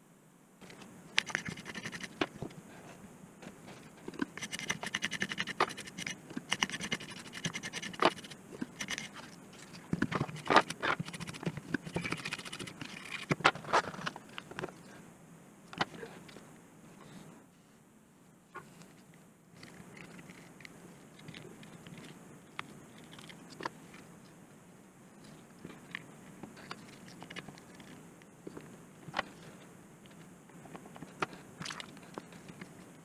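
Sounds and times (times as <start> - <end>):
toothbrush scrubbing circuit board: 1.1 - 2.3, 4.2 - 13.4.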